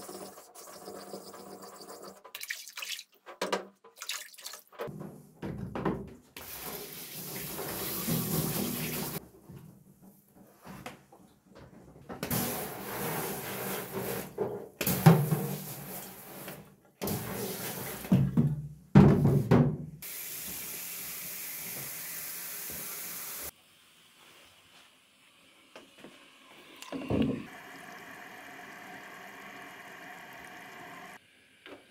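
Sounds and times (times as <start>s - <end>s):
water splashing into steel sink: 2.1s - 4.9s
shower sprayer hissing: 6.4s - 9.2s, 20.0s - 23.5s, 26.2s - 31.2s.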